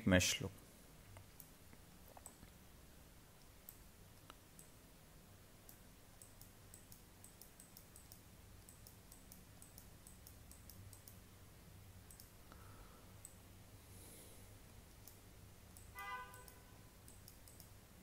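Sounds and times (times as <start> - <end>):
low steady hum: 0.0 - 18.0
computer mouse clicks: 1.2 - 2.6, 3.4 - 4.8, 5.6 - 11.2, 12.1 - 12.4, 13.2 - 13.4, 15.0 - 17.8.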